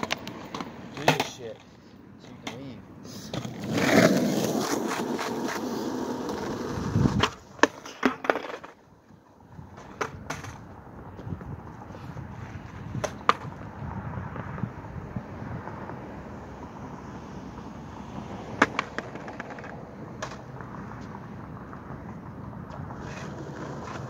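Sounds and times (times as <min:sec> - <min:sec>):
skateboard clacking on pavement: 0:00.0 - 0:10.8, 0:12.4 - 0:13.7, 0:18.4 - 0:24.0
skateboard wheels rolling on asphalt: 0:00.0 - 0:24.0.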